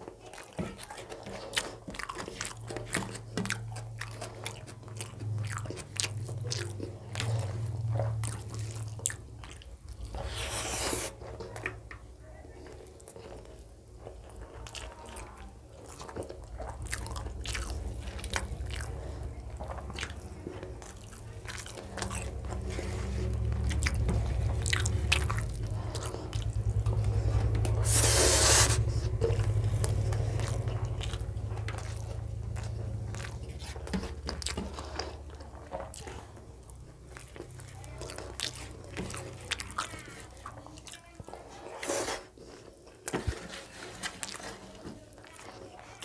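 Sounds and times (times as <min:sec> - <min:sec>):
person chewing food: 0:00.0 - 0:46.0
low rumble: 0:16.5 - 0:33.9.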